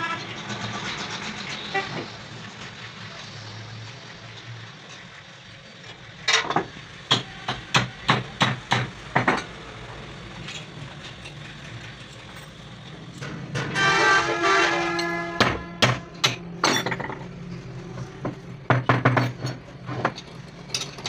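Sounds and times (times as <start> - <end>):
ringing metallic clatter: 16.1 - 17.4, 18.2 - 21.0.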